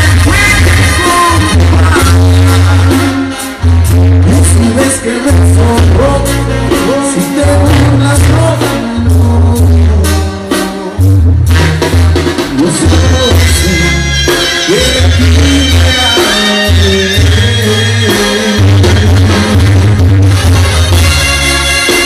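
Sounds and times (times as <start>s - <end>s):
deep pulsing bass line: 0.0s - 10.4s
person singing: 0.0s - 11.2s, 12.5s - 19.8s
brass band playing: 0.0s - 22.0s.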